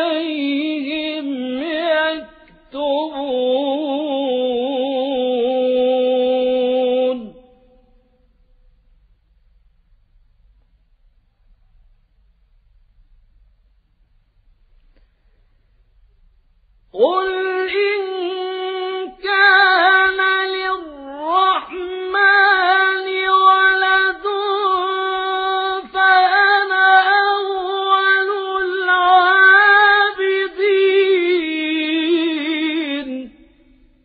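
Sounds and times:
man reciting melodically: 0.0 - 8.0, 16.9 - 34.0.

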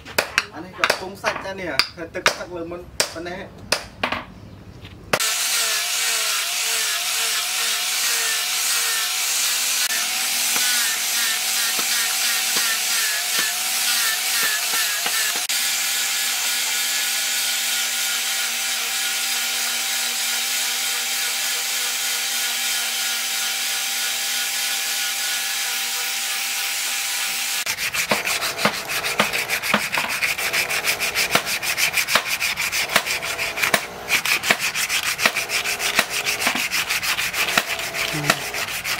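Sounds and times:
angle grinder sanding wood: 5.2 - 38.9
sandpaper rubbing wood: 5.2 - 38.9.

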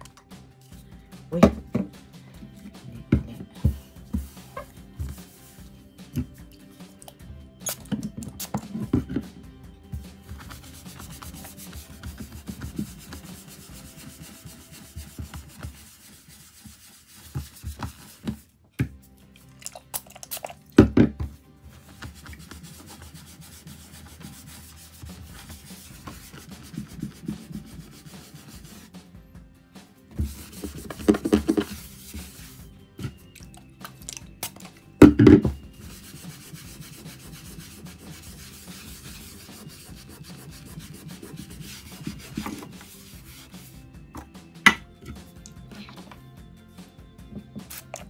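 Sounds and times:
cloth rubbing on wooden table: 3.7 - 5.7, 10.2 - 18.4, 21.8 - 28.9, 30.2 - 32.6, 35.8 - 43.8.

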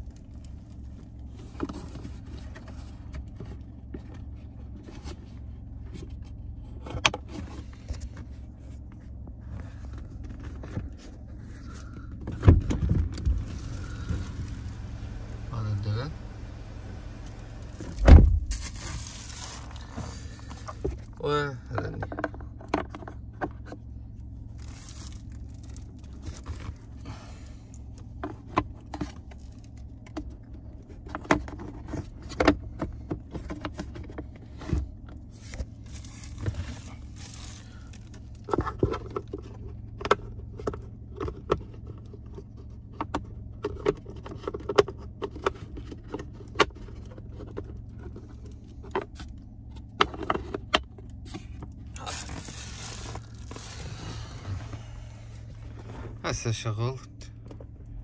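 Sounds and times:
steady low hum: 0.0 - 58.0
rustling: 16.2 - 21.2, 24.4 - 30.0, 33.2 - 39.8, 51.1 - 56.3.

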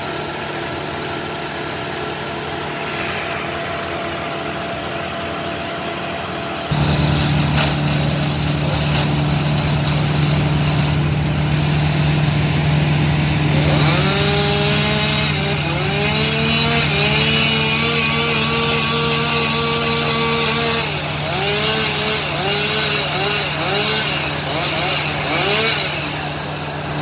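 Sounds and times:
chainsaw revving: 6.7 - 27.0.

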